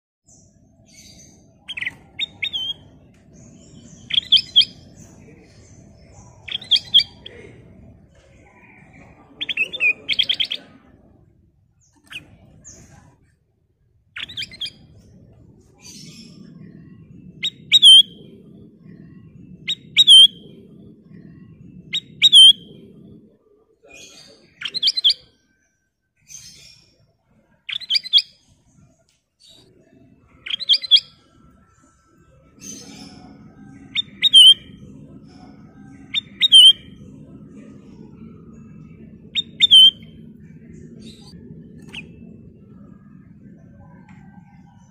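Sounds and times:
bird singing whistled notes: 0:00.3 - 0:07.3, 0:09.2 - 0:10.8, 0:14.2 - 0:15.1, 0:15.8 - 0:23.2, 0:24.4 - 0:25.3, 0:27.7 - 0:28.5, 0:30.4 - 0:37.0, 0:37.8 - 0:44.9
faint low rumble: 0:00.3 - 0:25.2, 0:26.2 - 0:44.9.

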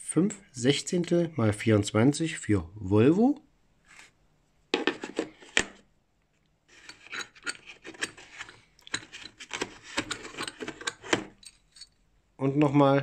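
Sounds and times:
metal scraping on plastic case: 0:06.7 - 0:11.8.

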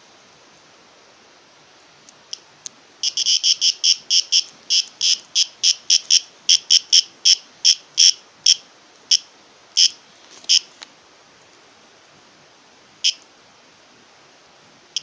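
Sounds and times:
cicada shrill squawks: 0:03.0 - 0:10.7, 0:13.0 - 0:13.2.

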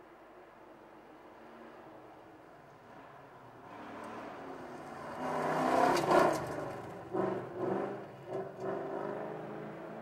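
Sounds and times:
rally car engine revving: 0:07.1 - 0:10.0.

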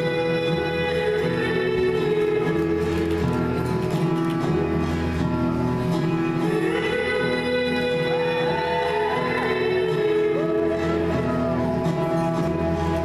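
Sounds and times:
music with long held notes: 0:00.0 - 0:13.0.

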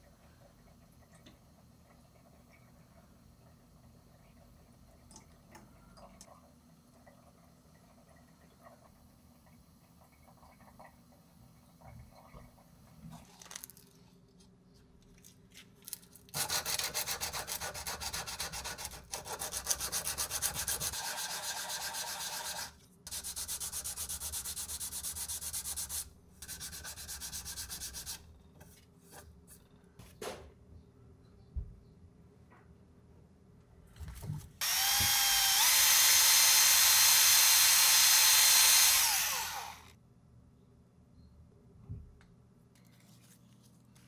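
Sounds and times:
sandpaper rubbing on steel blade: 0:16.4 - 0:28.2.

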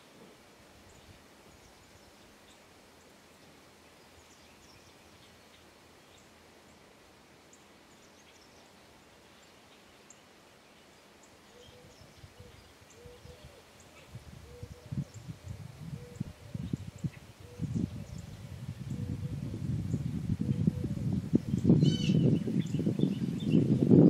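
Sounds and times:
small birds chirping: 0:07.5 - 0:23.9.

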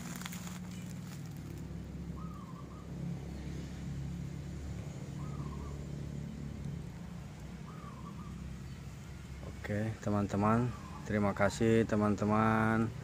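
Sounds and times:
low mechanical hum: 0:00.0 - 0:13.0
wavering bird call: 0:02.2 - 0:02.9, 0:05.2 - 0:05.8, 0:07.6 - 0:08.5, 0:10.6 - 0:11.2.

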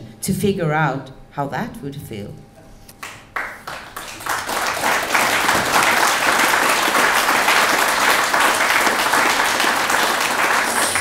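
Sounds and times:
audience applause: 0:03.0 - 0:11.0.

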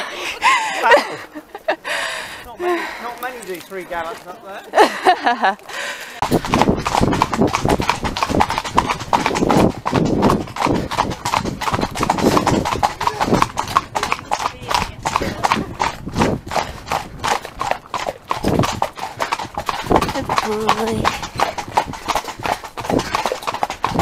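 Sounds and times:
horse hoofbeats: 0:05.7 - 0:24.0.

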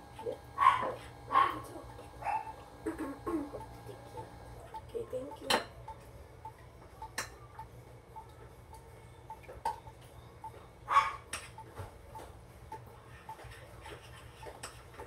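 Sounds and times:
kitchenware clattering: 0:05.2 - 0:06.1.

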